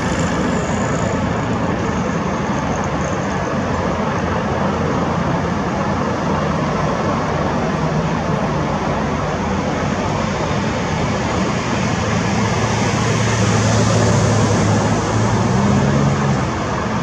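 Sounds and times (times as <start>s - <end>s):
helicopter hovering: 0.0s - 17.0s.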